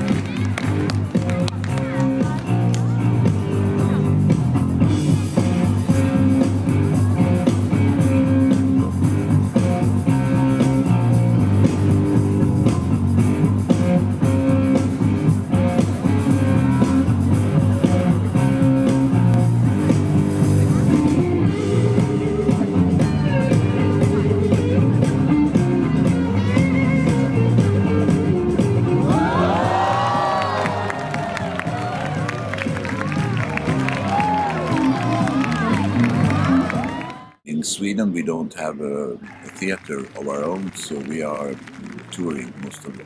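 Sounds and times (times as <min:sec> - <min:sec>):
rock music with guitar: 0:00.0 - 0:30.4.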